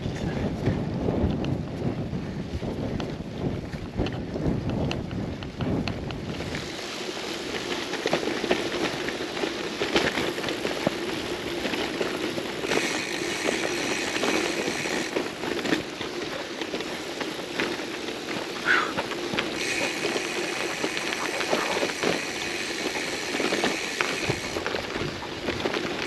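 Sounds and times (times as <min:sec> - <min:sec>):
bike tyres crunching gravel: 0:00.0 - 0:26.0
bright tyre hiss: 0:19.5 - 0:24.6.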